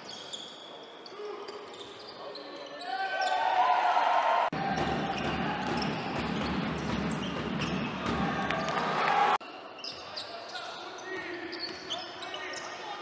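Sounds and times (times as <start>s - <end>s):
basketball court noise: 4.5s - 10.3s
ball bouncing on hardwood court: 4.7s - 8.8s.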